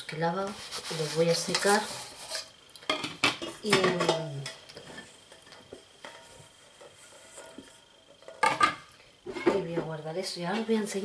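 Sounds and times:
pots and dishes clinking: 8.2s - 9.6s.

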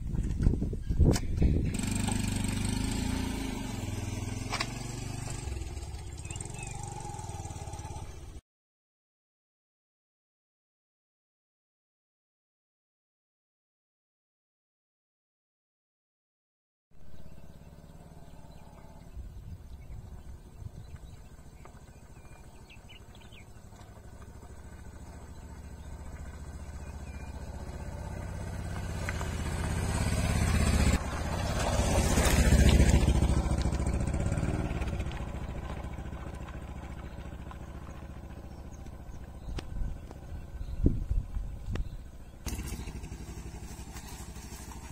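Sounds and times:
motorcycle engine passing: 1.5s - 8.4s, 17.0s - 44.9s.

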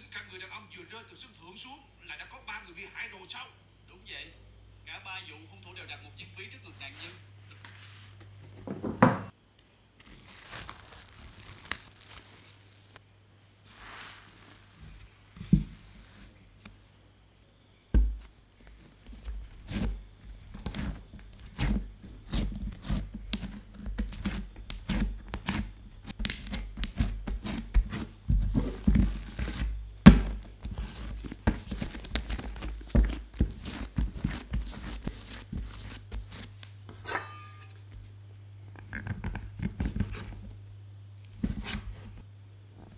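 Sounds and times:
faint rustles: 13.6s - 16.7s
dough kneading thumps: 14.8s - 16.3s, 17.9s - 37.0s.

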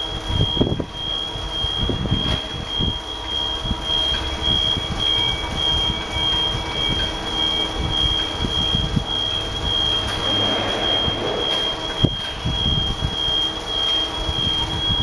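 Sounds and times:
high-pitched machine tone: 0.0s - 15.0s
low mechanical rumble: 0.0s - 15.0s.

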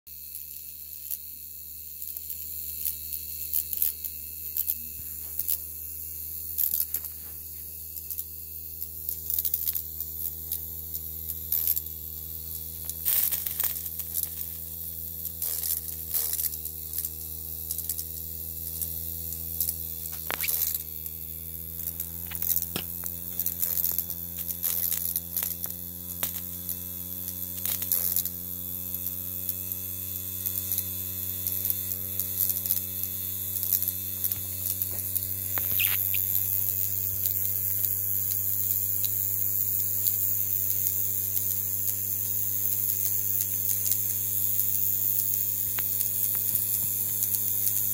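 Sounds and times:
steam engine buzzing hum: 0.1s - 47.9s
sharp clicks and spits: 20.1s - 20.8s, 34.2s - 38.0s.

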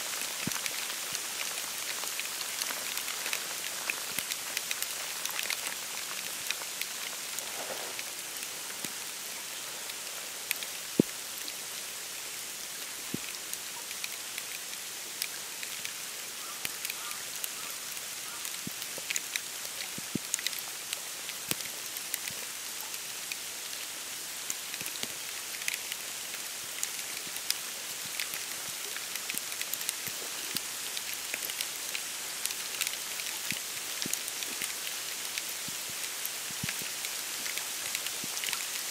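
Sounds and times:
snow hissing on reeds: 0.0s - 38.9s
light ticks: 0.1s - 9.3s, 9.9s - 11.6s, 12.8s - 23.8s, 24.4s - 38.9s.

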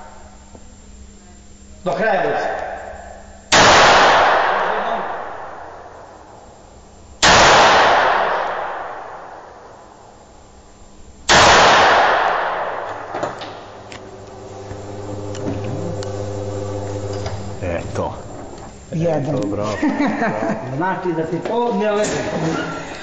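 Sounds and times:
steady low hum: 0.0s - 23.0s
echoing pistol shots: 3.5s - 5.9s, 7.2s - 9.6s, 11.3s - 13.2s.

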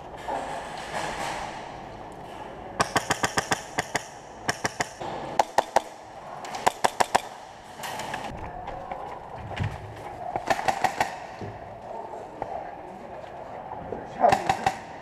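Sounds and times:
airsoft gun shots: 14.3s - 15.0s.

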